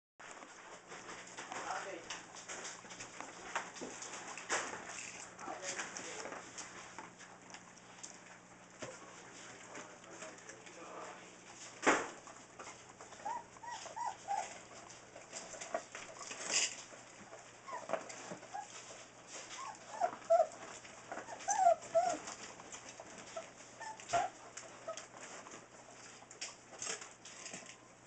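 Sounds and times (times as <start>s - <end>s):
puppies squeaking and whimpering: 12.6s - 14.9s, 17.6s - 22.5s, 23.1s - 25.1s.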